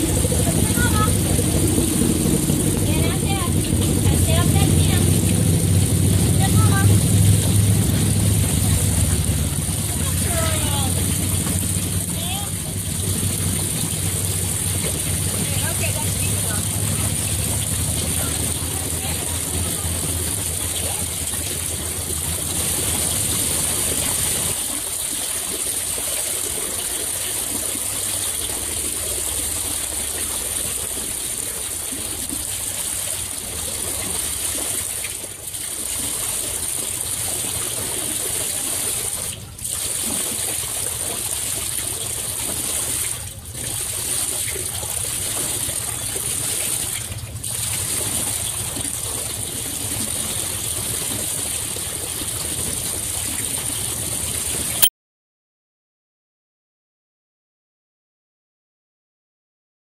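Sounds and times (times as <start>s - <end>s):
water lapping and splashing: 0.0s - 54.8s.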